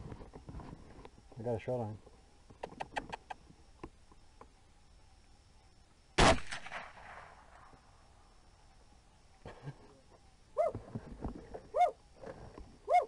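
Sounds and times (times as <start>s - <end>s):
rifle shot with echo: 6.2s - 7.5s.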